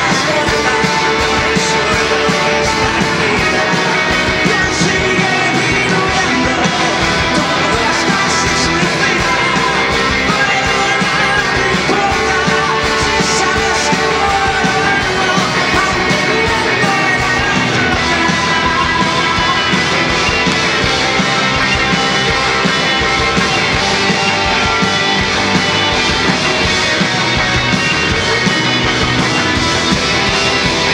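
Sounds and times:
drum kit: 0:00.0 - 0:30.9
electric guitars: 0:00.0 - 0:30.9.

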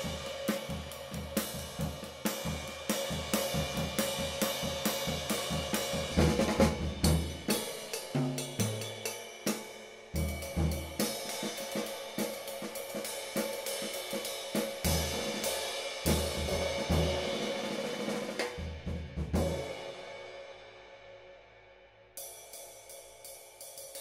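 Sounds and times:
ride cymbal played with stick: 0:00.0 - 0:18.8, 0:22.2 - 0:24.0.

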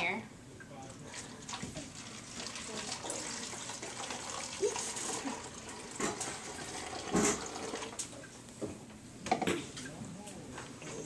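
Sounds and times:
liquid pouring into plastic bottle: 0:01.1 - 0:08.0.

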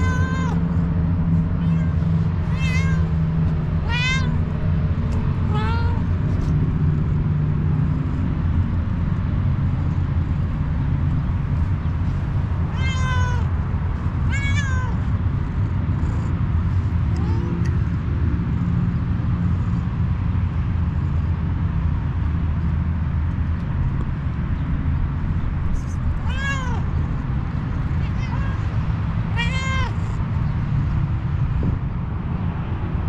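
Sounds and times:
cat meowing: 0:00.0 - 0:00.8, 0:01.4 - 0:06.5, 0:12.6 - 0:16.2, 0:16.8 - 0:17.9, 0:25.8 - 0:27.1, 0:27.8 - 0:30.2
steady low rumble: 0:00.0 - 0:33.0.

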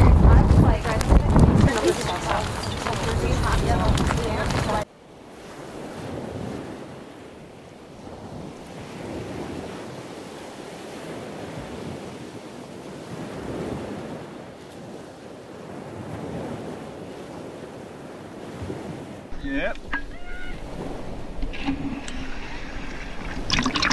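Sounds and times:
waves: 0:00.0 - 0:23.9
wind: 0:00.0 - 0:23.9.

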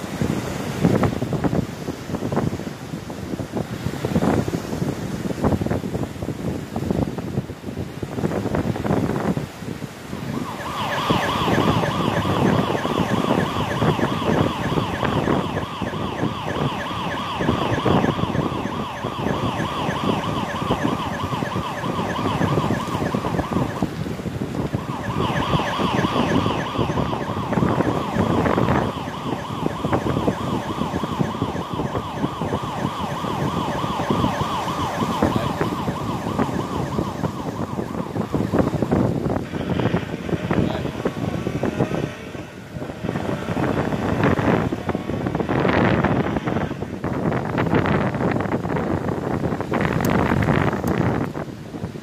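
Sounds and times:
wind noise on microphone: 0:00.0 - 0:52.0
police siren warbling: 0:10.0 - 0:48.9.

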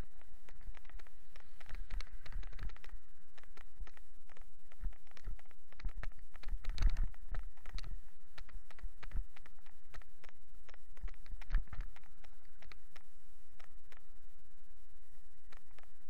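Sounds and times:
low steady rumble: 0:00.0 - 0:16.0
camera knocks and rattles: 0:04.7 - 0:09.5.

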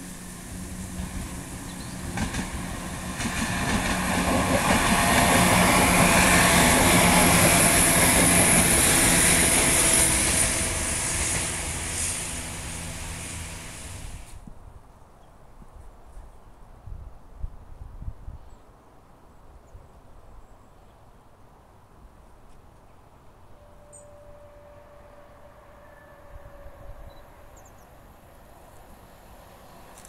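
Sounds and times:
diesel train passing: 0:00.0 - 0:14.4, 0:23.6 - 0:30.0.

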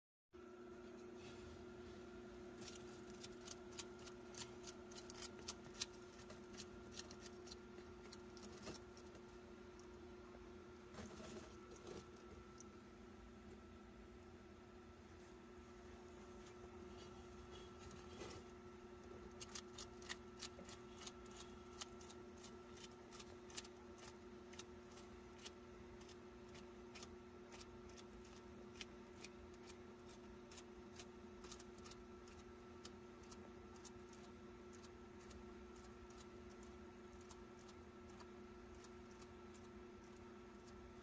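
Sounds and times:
lizard chewing crunchy leaf: 0:02.5 - 0:10.0, 0:19.2 - 0:41.0.

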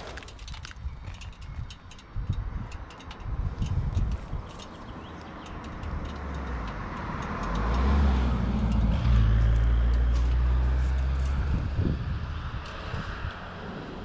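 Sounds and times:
car driving past: 0:06.3 - 0:14.0.

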